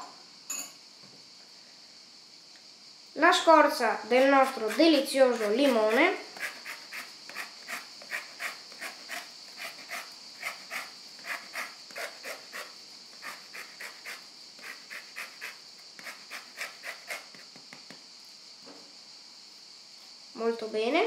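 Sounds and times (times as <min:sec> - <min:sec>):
lemon rind rasping on metal grater: 0:04.1 - 0:17.2.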